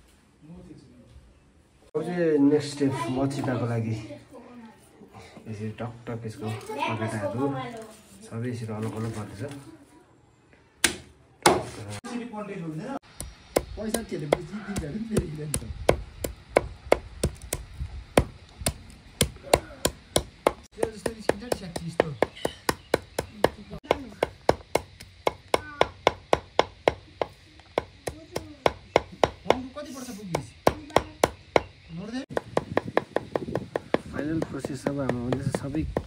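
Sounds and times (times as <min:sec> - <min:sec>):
cleaver chopping on wooden block: 0:13.2 - 0:29.6, 0:30.3 - 0:31.7, 0:32.3 - 0:36.0.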